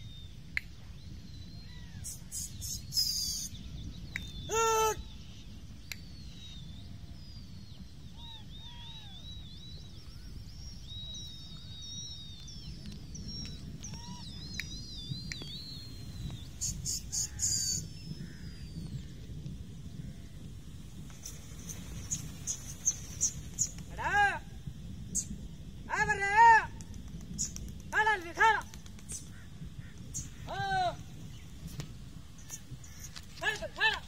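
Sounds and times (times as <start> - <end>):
low wind rumble: 0.0 - 34.0
small birds calling: 0.0 - 34.0
loud short bird call: 4.2 - 5.4, 16.6 - 19.0.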